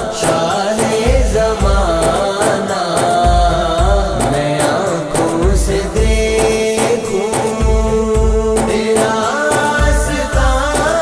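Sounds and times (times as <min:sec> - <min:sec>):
deep bass beats: 0:00.0 - 0:02.4, 0:03.2 - 0:04.6, 0:05.2 - 0:06.8, 0:07.5 - 0:09.0, 0:09.7 - 0:11.0.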